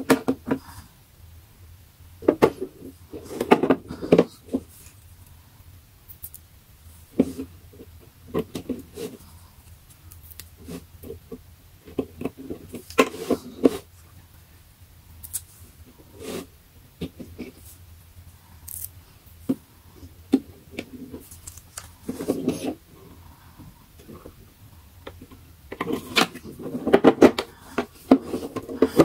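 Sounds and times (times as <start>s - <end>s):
plastic boxes clattering: 25.8s - 29.0s.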